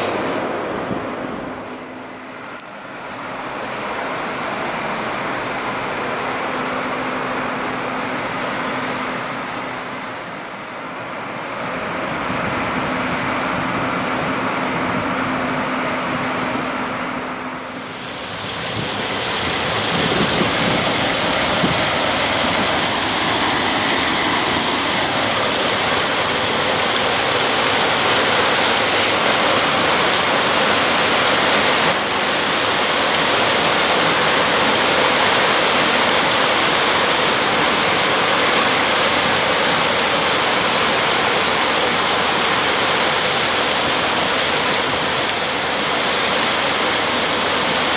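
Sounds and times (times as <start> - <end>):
low hum: 0.0 - 28.0
water rushing: 0.0 - 47.9.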